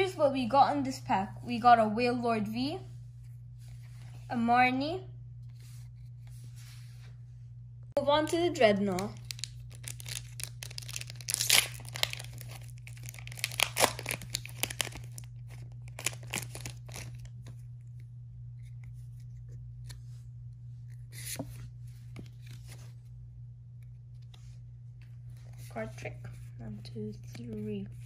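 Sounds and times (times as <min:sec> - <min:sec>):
steady low hum: 0:00.0 - 0:28.0
foil wrapper ripping and crinkling: 0:08.8 - 0:17.5.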